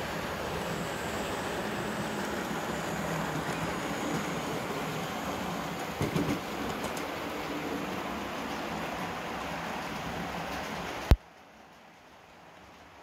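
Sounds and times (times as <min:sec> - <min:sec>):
model train rumbling on track: 0:00.0 - 0:13.0
knock: 0:06.0 - 0:06.4.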